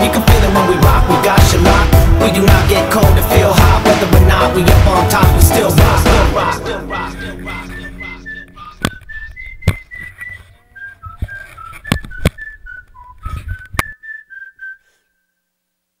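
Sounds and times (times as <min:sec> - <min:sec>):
person whistling a tune: 0:06.9 - 0:15.4.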